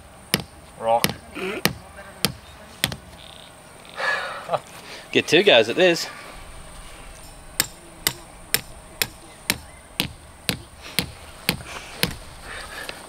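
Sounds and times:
hammering with a rock: 0:00.3 - 0:03.1, 0:07.6 - 0:12.2.

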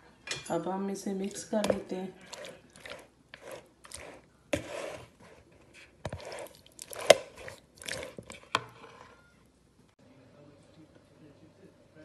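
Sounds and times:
wet squelching of mixing meat: 0:01.2 - 0:05.0, 0:06.1 - 0:08.6.

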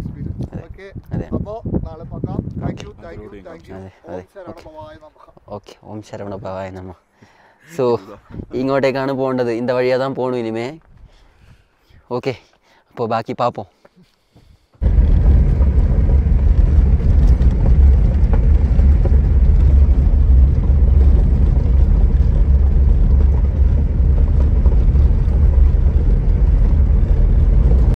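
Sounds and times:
vehicle driving on gravel road: 0:14.8 - 0:28.0.

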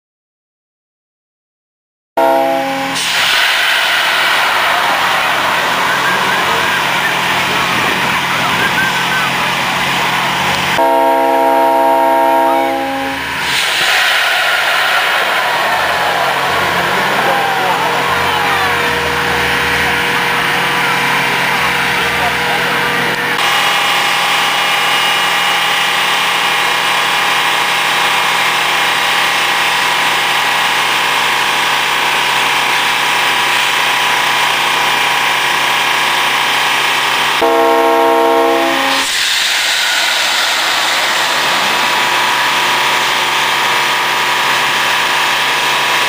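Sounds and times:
multi-tone air horn: 0:02.2 - 0:03.1, 0:10.8 - 0:13.3, 0:37.4 - 0:39.2
air compressor engine running: 0:13.2 - 0:46.0.

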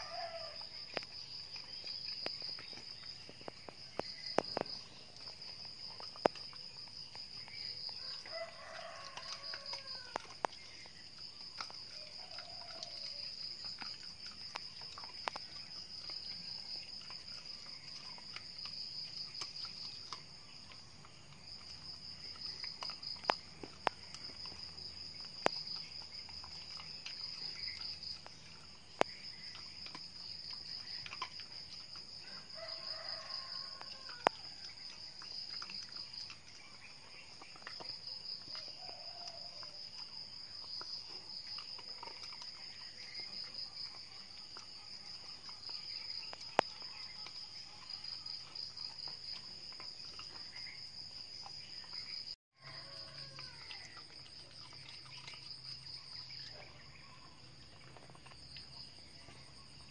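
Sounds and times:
rooster crowing: 0:00.0 - 0:00.7, 0:08.0 - 0:10.4, 0:32.2 - 0:34.6, 0:52.6 - 0:54.0
dog crunching crab shell: 0:00.0 - 0:52.1
high pulsing insect trill: 0:00.0 - 0:59.9.

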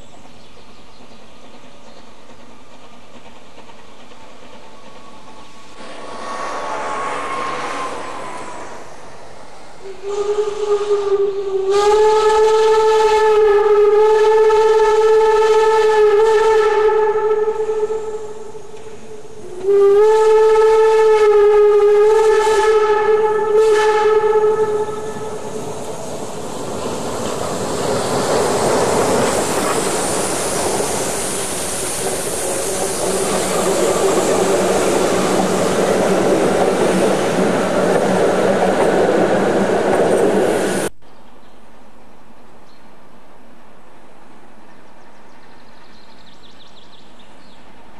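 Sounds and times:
train running past: 0:00.0 - 0:40.9
steam locomotive whistle: 0:05.8 - 0:25.8.

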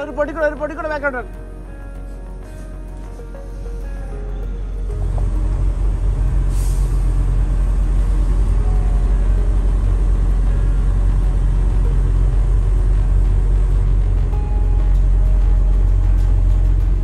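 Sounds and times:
diesel truck engine rumbling: 0:00.0 - 0:17.0
air brake hiss: 0:06.4 - 0:07.4.

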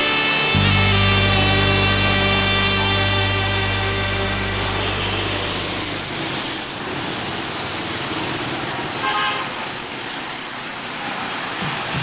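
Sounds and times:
vehicle horn toot: 0:00.0 - 0:06.1, 0:09.0 - 0:09.6
city street traffic: 0:00.0 - 0:12.0.

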